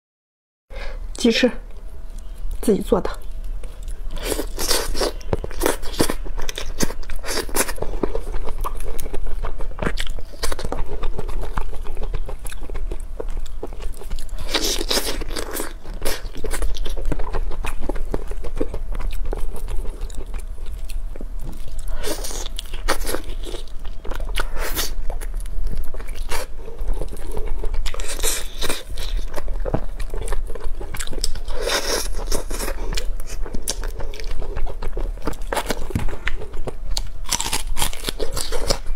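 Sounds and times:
crunchy bites: 35.0 - 38.9.

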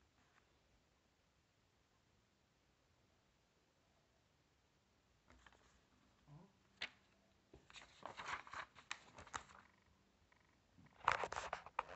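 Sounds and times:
rustling handling noise: 6.8 - 9.7, 10.9 - 11.9.

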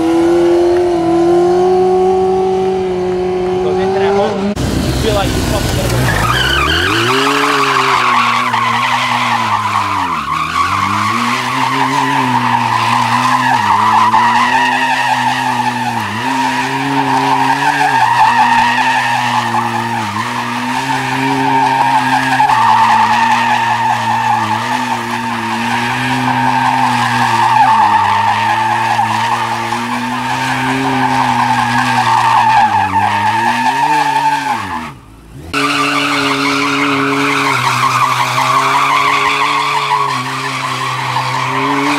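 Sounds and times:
motorcycle engine at high revs: 0.0 - 8.4
tire squealing: 0.0 - 41.9.

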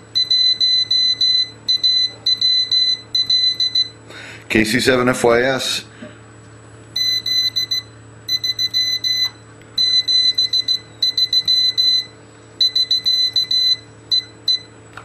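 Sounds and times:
morse code beeping: 0.1 - 4.0, 7.0 - 14.7.

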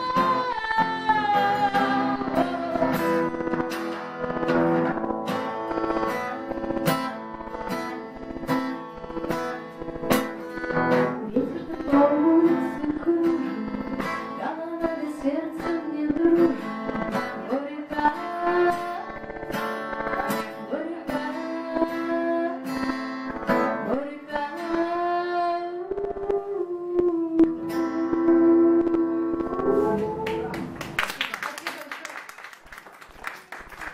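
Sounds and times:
woman singing: 0.0 - 3.6, 10.6 - 19.4, 20.0 - 30.5
strummed acoustic guitar: 0.0 - 26.6.

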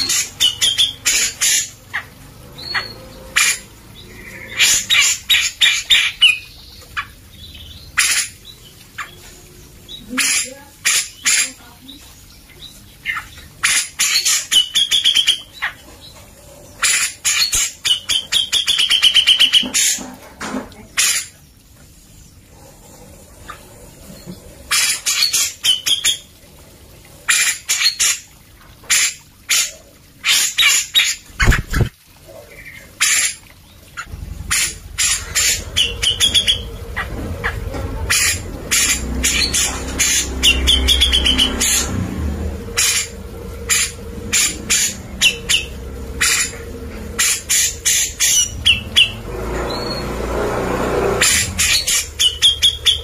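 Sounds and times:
bulbul singing: 32.6 - 50.2, 51.2 - 53.0.

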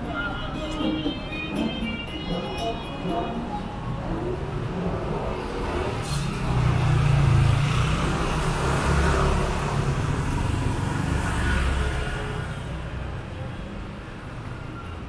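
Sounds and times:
street noise: 0.0 - 15.0
motorbikes riding past: 5.0 - 12.6.

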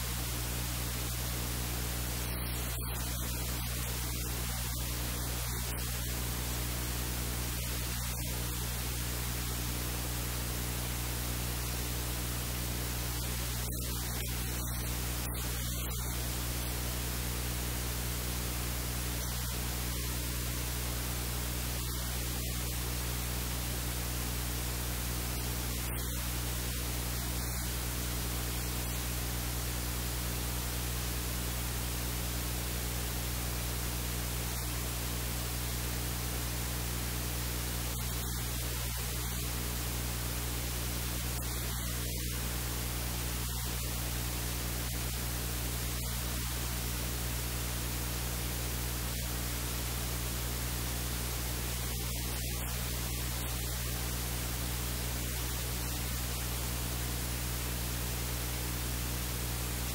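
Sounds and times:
low electrical hum: 0.0 - 59.9
static hiss: 0.0 - 59.9.

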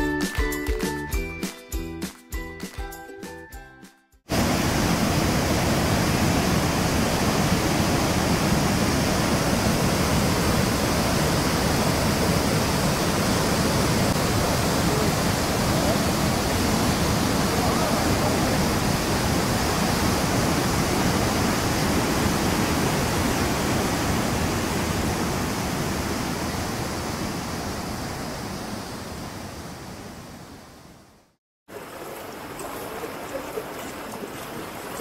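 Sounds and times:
water rushing over boulders: 4.3 - 29.4, 31.7 - 35.0
quiet river flowing: 10.9 - 35.0.

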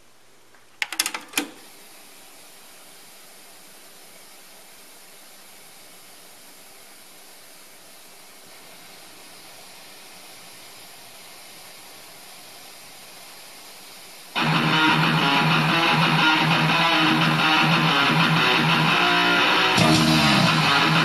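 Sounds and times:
faint tape hiss: 0.0 - 21.0
guitar music: 14.4 - 21.0.

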